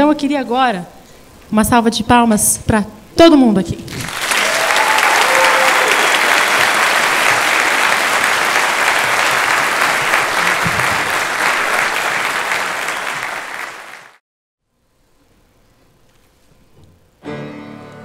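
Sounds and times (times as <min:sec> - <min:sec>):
audience applauding: 0:04.0 - 0:14.2.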